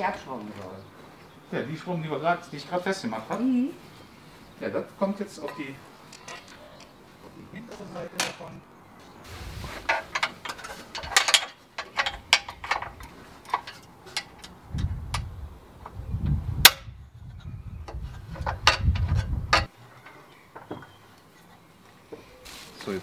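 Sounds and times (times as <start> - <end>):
metal parts clicking and knocking: 9.9 - 14.6.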